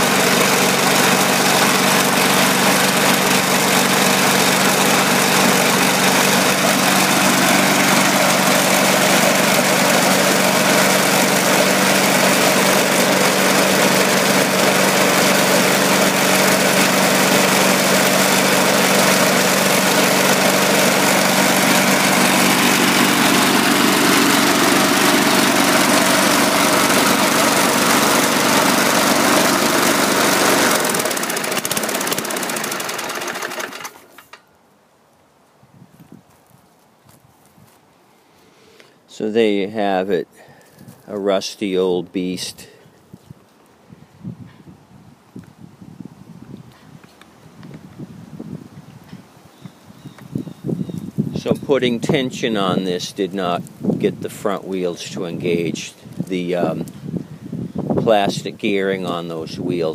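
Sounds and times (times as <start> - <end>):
lawn mower engine running: 0.0 - 34.6, 50.2 - 59.9.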